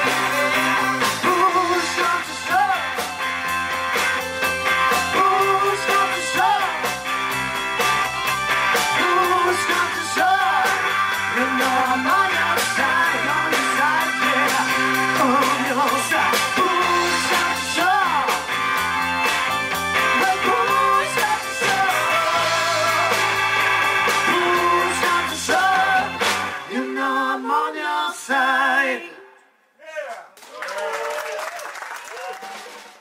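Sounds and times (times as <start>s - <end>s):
person singing: 0.0s - 3.3s, 4.4s - 7.3s, 8.7s - 18.5s, 20.0s - 29.4s
drum kit steady beat: 0.0s - 26.6s
electric bass: 0.0s - 27.0s
electric guitar: 0.0s - 27.0s
keyboard: 0.0s - 27.7s.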